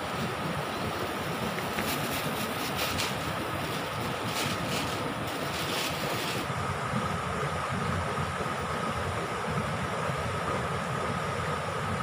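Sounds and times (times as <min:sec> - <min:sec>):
stream rushing over rocks: 0:00.0 - 0:11.1
plastic bag crinkling: 0:01.8 - 0:06.5.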